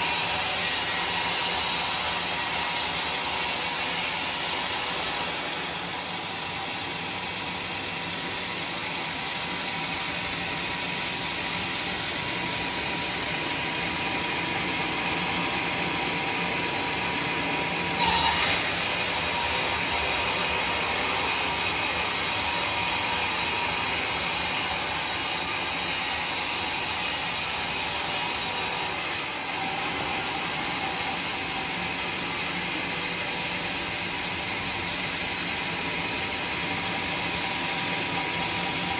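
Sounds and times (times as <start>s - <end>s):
sawmill machine running: 0.0s - 38.9s.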